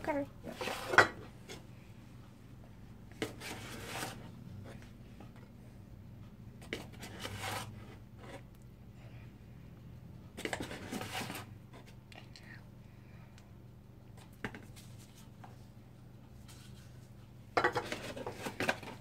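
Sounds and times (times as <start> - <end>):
low steady hum: 0.0 - 19.0
flour scraping into plastic cup: 3.2 - 4.3, 10.5 - 11.5.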